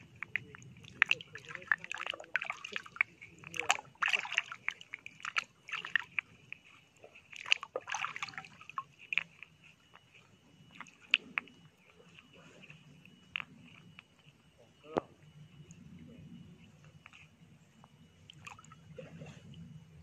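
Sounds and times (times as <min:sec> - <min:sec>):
stream water splashing: 0:00.0 - 0:09.7, 0:18.3 - 0:19.2.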